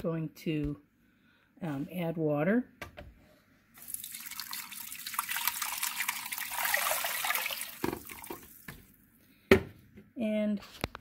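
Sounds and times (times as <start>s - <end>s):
water pouring from a pitcher: 3.8s - 8.8s.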